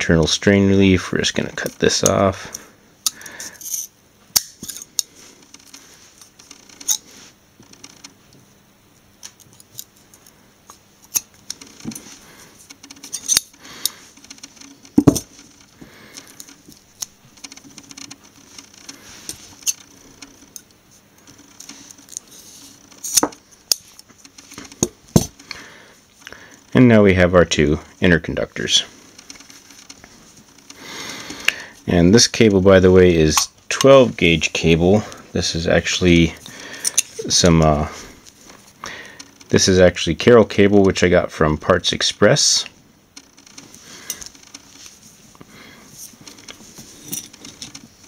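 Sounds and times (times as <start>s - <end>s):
metallic clicks: 12.7s - 22.3s.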